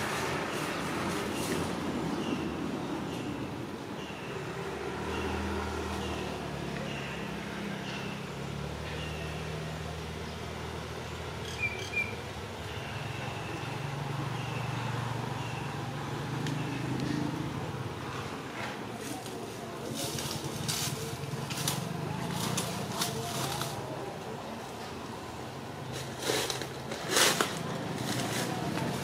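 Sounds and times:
vehicle engine humming: 0:00.0 - 0:29.0
bird chirping: 0:01.4 - 0:17.5.

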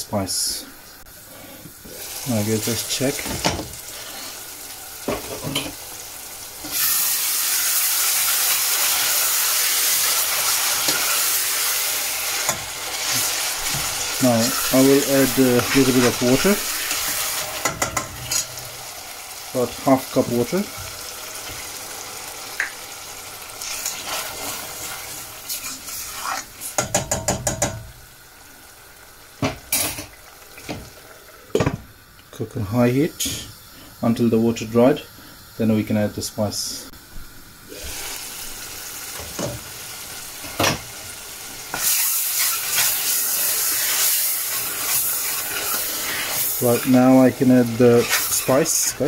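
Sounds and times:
light sizzle: 0:00.0 - 0:49.0
onion and tomato frying in oil: 0:00.2 - 0:49.0
metal spoon stirring in saucepan: 0:25.5 - 0:27.6, 0:41.7 - 0:49.0.

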